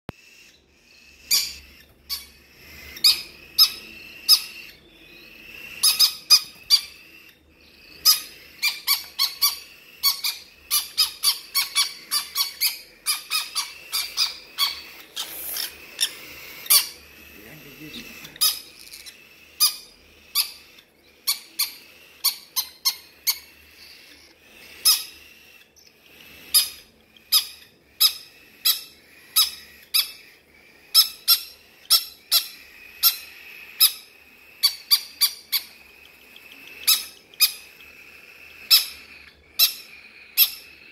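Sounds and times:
parrots squawking: 0.1s - 40.9s.

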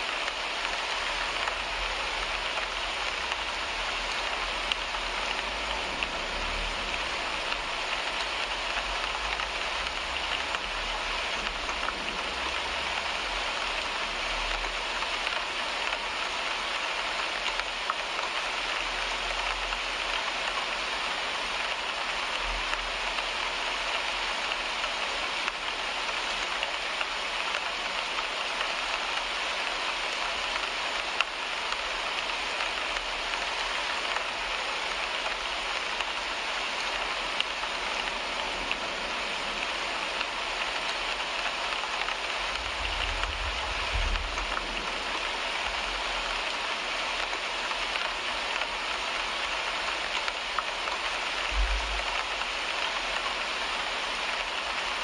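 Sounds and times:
rain on a car windshield: 0.0s - 55.0s
sharp tap of a raindrop: 41.1s - 45.8s, 50.2s - 52.4s.

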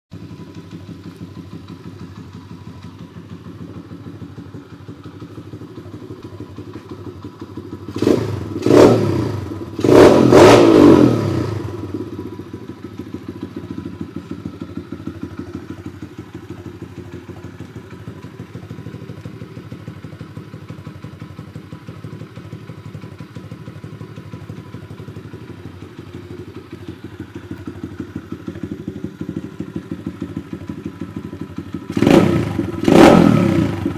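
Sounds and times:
motorbike engine idling: 0.1s - 33.9s
motorbike engine revving: 7.8s - 14.4s, 31.9s - 33.9s.

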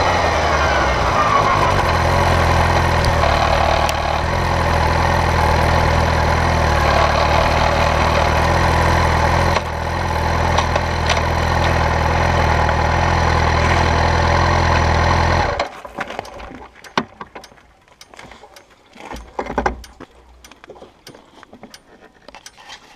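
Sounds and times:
motorcycle engine idling: 1.5s - 15.6s.

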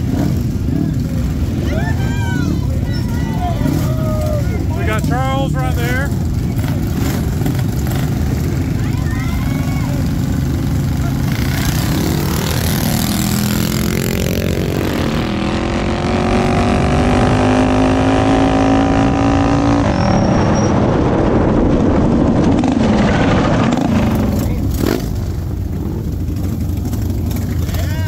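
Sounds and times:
motorbike engine at full throttle: 0.0s - 28.0s
rough engine noise: 0.0s - 28.0s.

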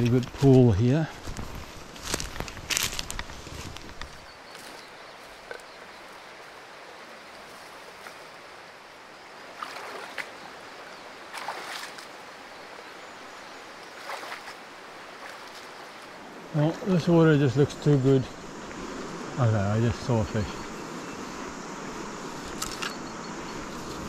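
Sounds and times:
river water rushing: 4.9s - 24.0s.

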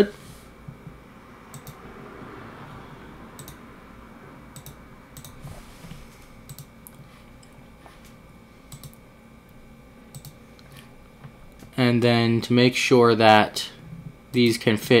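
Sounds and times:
faint room hum: 0.0s - 15.0s
mouse buttons clicking: 1.5s - 1.8s, 3.4s - 3.6s.

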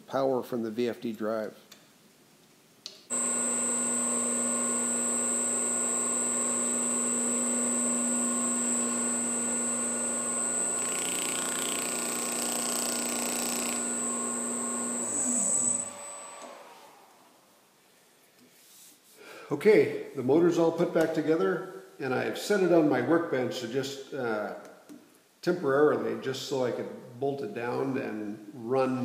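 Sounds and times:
electric motor humming and whining: 3.1s - 17.2s.

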